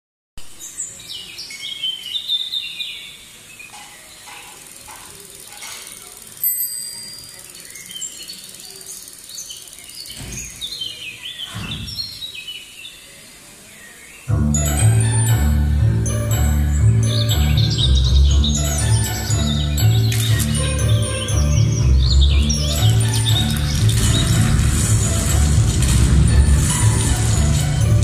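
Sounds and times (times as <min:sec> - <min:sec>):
birds chirping: 0:00.4 - 0:25.4
bicycle bell ringing: 0:05.8 - 0:08.0
loud music with heavy bass: 0:20.4 - 0:28.0.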